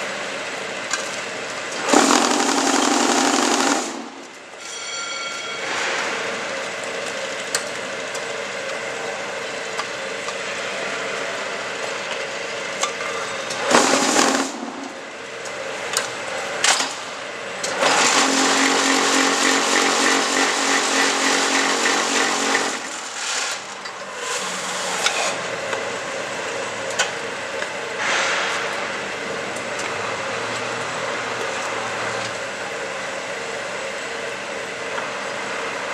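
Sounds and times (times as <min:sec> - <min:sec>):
sharp metal clanks: 0:04.2 - 0:06.3.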